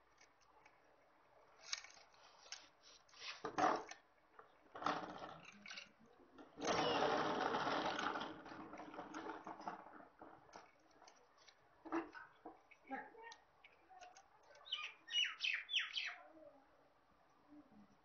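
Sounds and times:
chainsaw chain rattling on metal: 6.6s - 9.7s.

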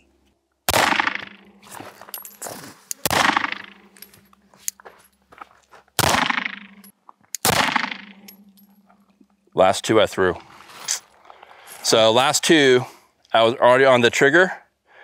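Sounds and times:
pistol shots with echo: 0.7s - 1.4s, 3.0s - 3.9s, 6.0s - 8.4s.

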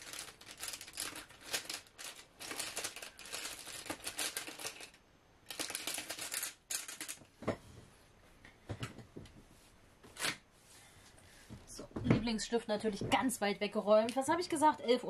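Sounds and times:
hands rummaging through desk items: 0.0s - 7.6s.

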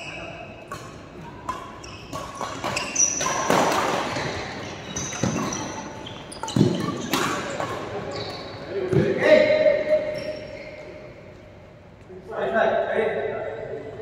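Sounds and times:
court shoes squeaking: 0.0s - 12.0s
rackets striking shuttlecock: 0.6s - 8.0s.

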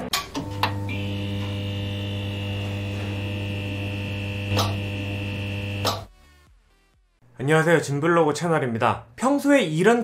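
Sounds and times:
neon sign mains hum: 0.4s - 6.1s.

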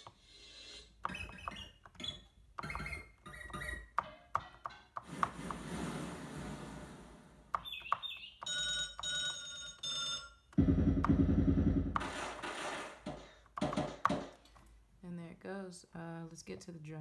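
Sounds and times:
bird-like chirps: 7.6s - 8.5s
ringing telephone tone: 8.4s - 11.5s.

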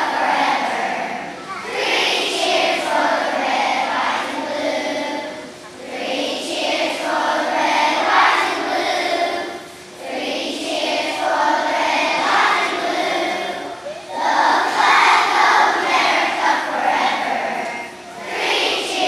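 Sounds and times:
children's choir singing: 0.0s - 19.0s.

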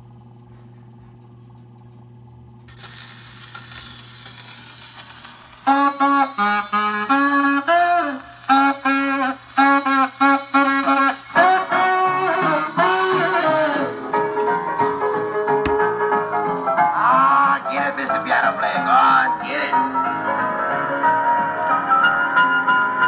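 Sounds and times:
tenor saxophone riff: 5.6s - 15.5s
band playing: 5.7s - 18.4s.

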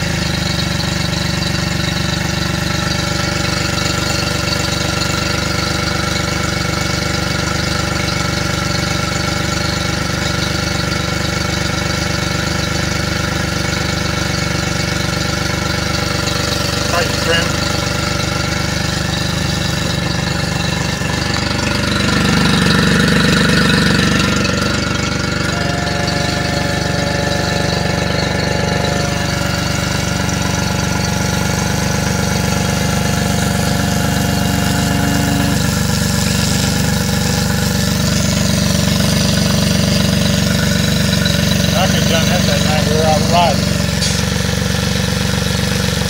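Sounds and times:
outboard engine idling: 0.0s - 46.0s.

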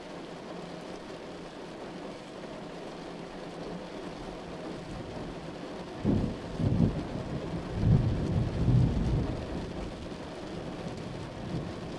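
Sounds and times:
steady rain hiss: 0.0s - 11.9s.

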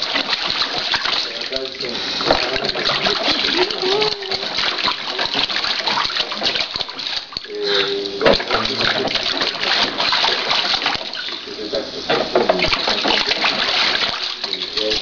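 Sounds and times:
water splashing in baby bathtub: 0.0s - 15.0s
short voice: 7.5s - 8.4s.

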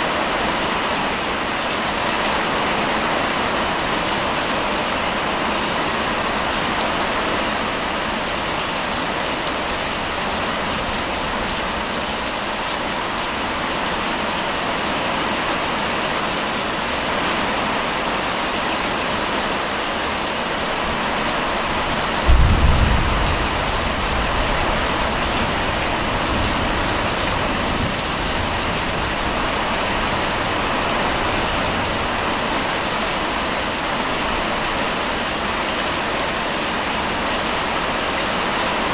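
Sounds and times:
heavy rain pouring: 0.0s - 38.9s
low clap of thunder: 22.0s - 28.9s.

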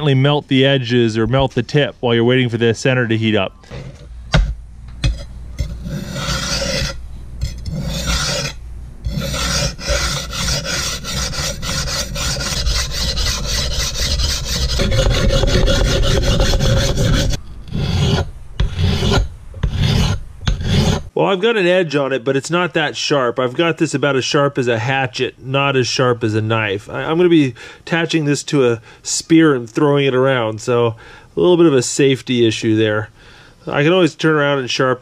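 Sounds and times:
blade rasping on whetstone: 5.1s - 21.1s.

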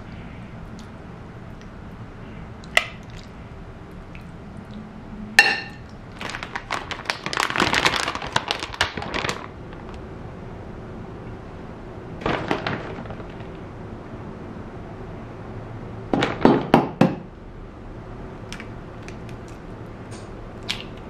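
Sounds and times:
crinkling and clattering: 6.1s - 10.0s, 12.2s - 13.7s.

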